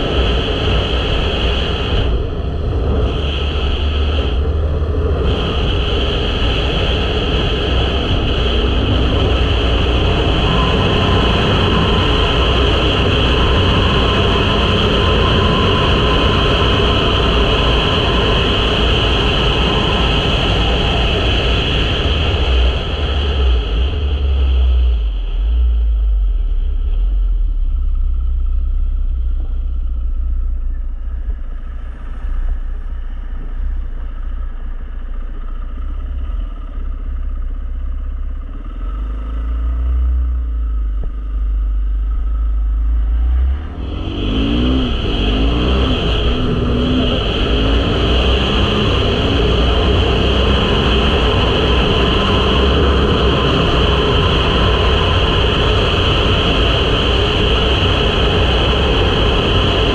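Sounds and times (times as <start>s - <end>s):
wind buffeting microphone: 0.0s - 27.1s, 43.1s - 59.9s
dirt bike engine revving: 43.2s - 54.3s.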